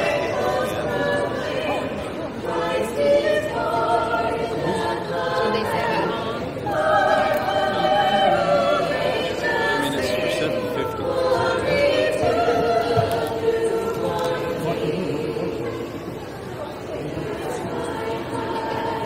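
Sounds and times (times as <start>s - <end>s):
vocal group singing in harmony: 0.0s - 19.0s.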